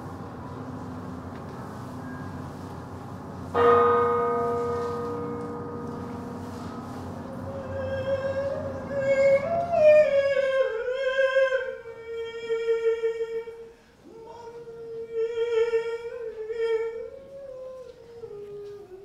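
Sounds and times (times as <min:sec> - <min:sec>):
person singing wordless notes: 0:05.4 - 0:19.0.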